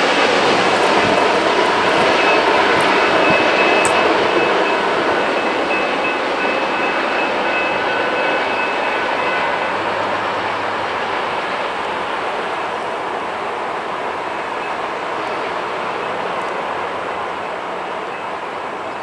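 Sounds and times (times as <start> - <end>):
train wheels rumbling on rail: 0.0 - 19.0
faint high ringing tone: 0.9 - 12.0.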